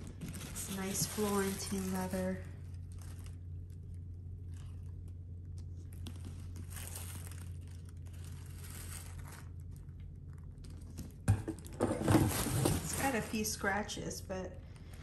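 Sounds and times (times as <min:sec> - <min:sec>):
faint rustling and handling: 0:00.0 - 0:11.2
steady low hum: 0:00.0 - 0:15.0.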